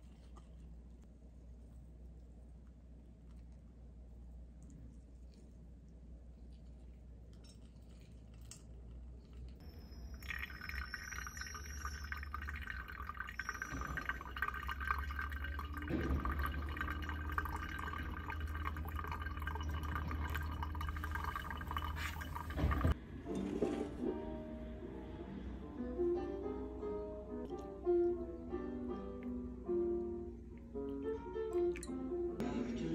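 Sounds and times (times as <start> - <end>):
water pouring onto coffee grounds: 9.6 - 23.0.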